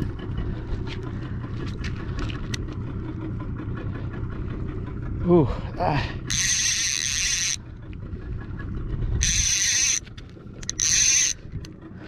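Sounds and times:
low boat engine rumble: 0:00.0 - 0:12.0
fishing reel clicker buzzing: 0:06.3 - 0:07.6, 0:09.2 - 0:11.7.

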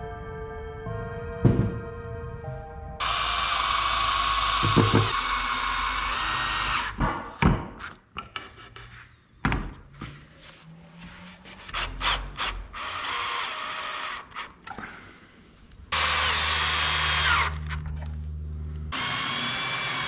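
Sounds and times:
cordless drill driving a screw: 0:03.0 - 0:07.0, 0:11.7 - 0:14.5, 0:15.9 - 0:17.9, 0:18.9 - 0:20.0
wooden knocks and clatters: 0:04.6 - 0:05.2.

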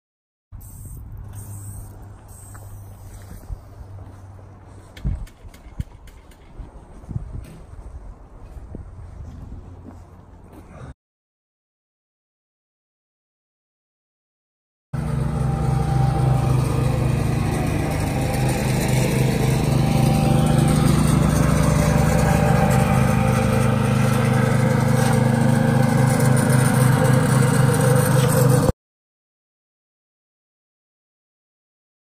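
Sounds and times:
small petrol engine running: 0:00.6 - 0:03.4, 0:15.0 - 0:28.7.

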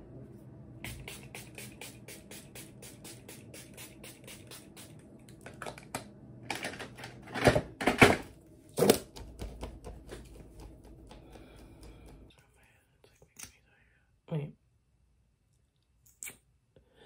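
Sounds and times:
pump spray bottle spritzing: 0:00.8 - 0:05.0.

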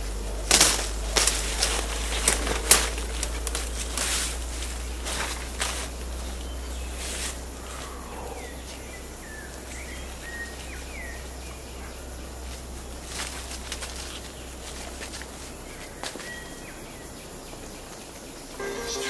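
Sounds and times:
crickets chirping: 0:00.0 - 0:19.0
leaves and undergrowth rustling: 0:00.0 - 0:19.0
whistled bird calls: 0:06.3 - 0:12.3, 0:15.6 - 0:19.0.

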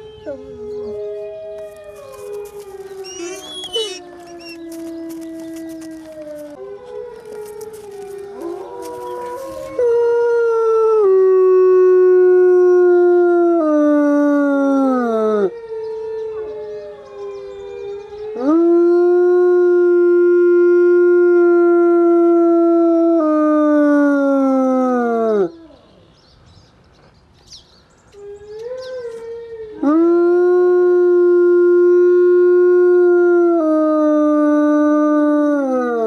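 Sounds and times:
faint distant wolf howls: 0:00.0 - 0:11.0
wolf howling close by: 0:00.0 - 0:26.0, 0:28.2 - 0:36.0.

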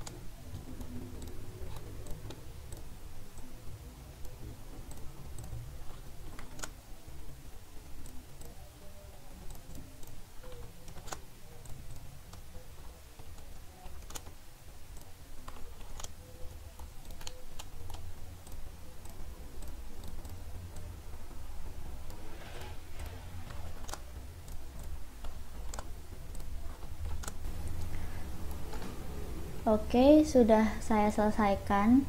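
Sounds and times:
low steady hum: 0:00.0 - 0:32.0
mouse and keyboard clicks: 0:04.9 - 0:06.8, 0:07.9 - 0:20.9, 0:22.0 - 0:29.0.

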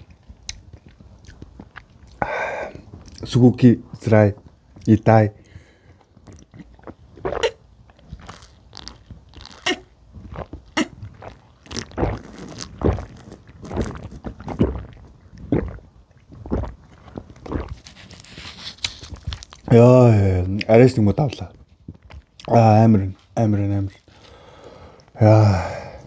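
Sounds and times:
person gulping milk: 0:05.8 - 0:18.3
sucking from drink pouch: 0:06.1 - 0:15.8, 0:16.5 - 0:19.7.

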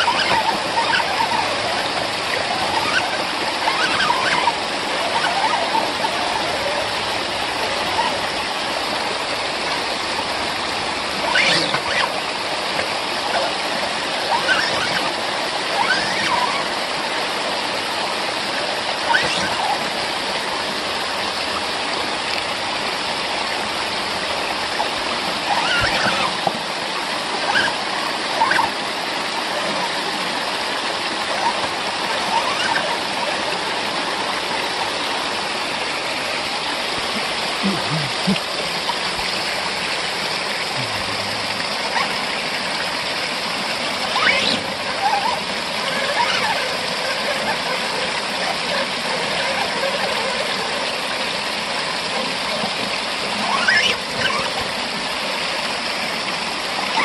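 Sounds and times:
brief high squeaks: 0:00.0 - 0:01.8, 0:02.5 - 0:06.4, 0:11.2 - 0:12.1, 0:14.3 - 0:15.1, 0:15.8 - 0:16.6, 0:19.0 - 0:19.8, 0:25.5 - 0:26.4, 0:27.5 - 0:27.8, 0:28.4 - 0:28.7, 0:32.2 - 0:32.9, 0:44.1 - 0:46.7, 0:53.4 - 0:54.6
waterfall splashing over rocks: 0:00.0 - 0:57.0.

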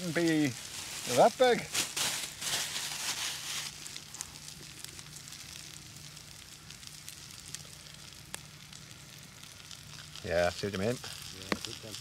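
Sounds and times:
fire crackling pops: 0:00.0 - 0:12.0
fire hissing in stove: 0:00.0 - 0:12.0.

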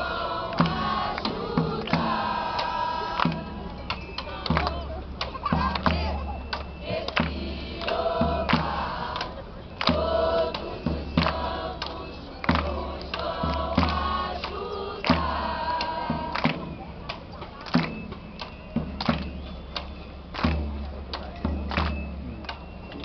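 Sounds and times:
group of voices singing: 0:00.0 - 0:16.9.

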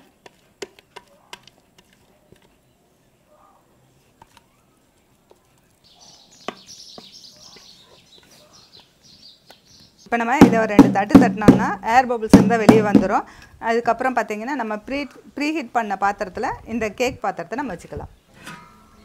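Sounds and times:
small birds chirping: 0:02.1 - 0:10.2.

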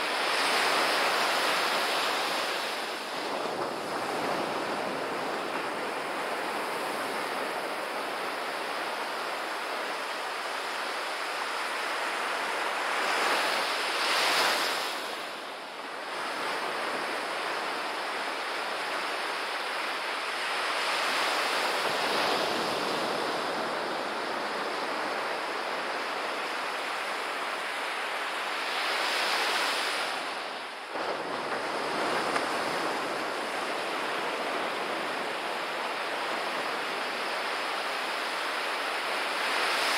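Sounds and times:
surf breaking on beach: 0:28.8 - 0:39.9.

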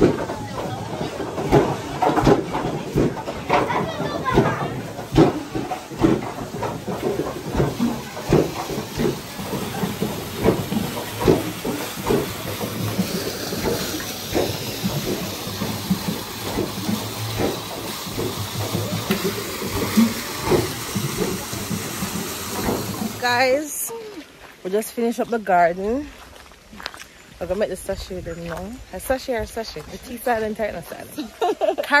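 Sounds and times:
wooden hammers knocking: 0:00.0 - 0:23.2
water rushing off wheel: 0:00.0 - 0:23.9.

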